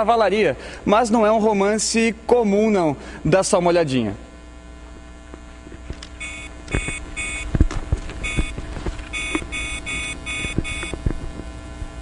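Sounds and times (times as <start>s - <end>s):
phone keypad beeps: 6.2s - 7.5s, 8.2s - 10.9s.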